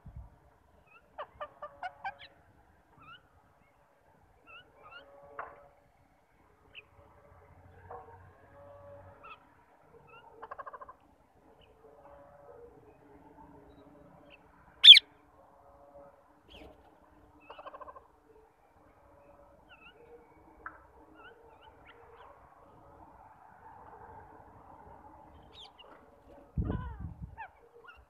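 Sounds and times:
faint bird chirps: 0:14.8 - 0:15.0
parakeet shrill screech: 0:14.8 - 0:15.0.

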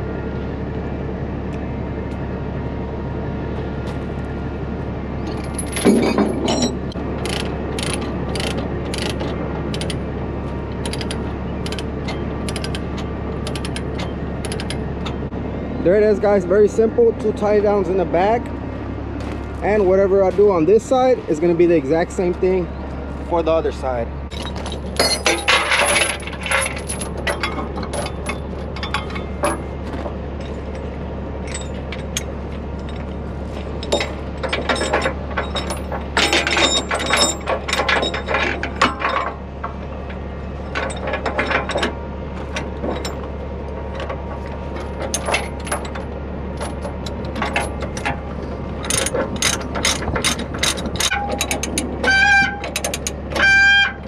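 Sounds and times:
steady low hum: 0:00.0 - 0:54.0
steel chain clanking: 0:05.2 - 0:10.0, 0:10.8 - 0:15.2, 0:24.3 - 0:54.0.

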